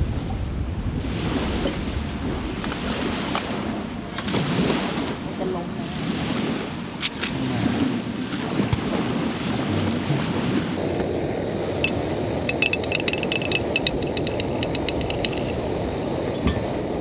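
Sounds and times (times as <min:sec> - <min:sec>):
metallic clinking: 0:11.8 - 0:15.6.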